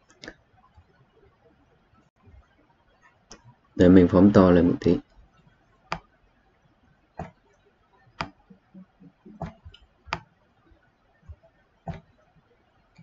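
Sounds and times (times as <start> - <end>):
computer mouse clicking: 5.3 - 6.2, 7.2 - 13.0.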